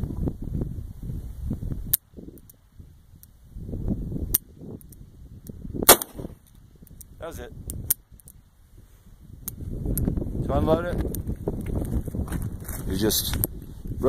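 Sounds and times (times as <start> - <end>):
wind rumble on microphone: 0.0 - 14.0
loud gunshot: 5.9 - 6.3.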